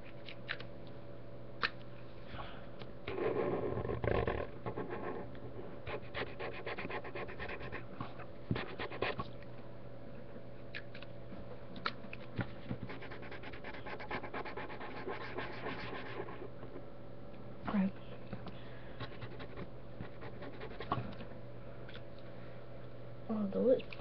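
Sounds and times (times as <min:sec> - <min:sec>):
steady low hum: 0:00.0 - 0:24.0
marker scratching on paper: 0:05.9 - 0:07.9, 0:08.5 - 0:09.2, 0:12.8 - 0:16.8, 0:19.1 - 0:21.0.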